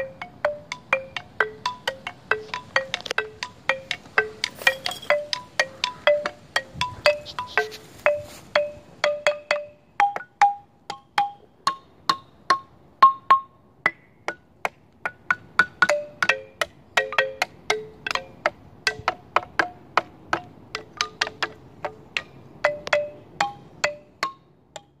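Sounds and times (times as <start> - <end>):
xylophone notes: 0.0 - 14.1, 15.1 - 19.8, 20.8 - 25.0.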